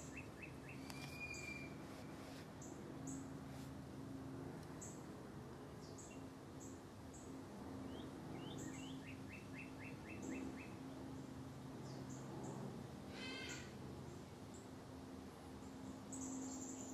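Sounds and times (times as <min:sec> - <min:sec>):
small birds chirping: 0:00.0 - 0:01.8, 0:05.7 - 0:11.2, 0:11.8 - 0:12.6, 0:15.6 - 0:16.9
low steady hum: 0:00.0 - 0:16.9.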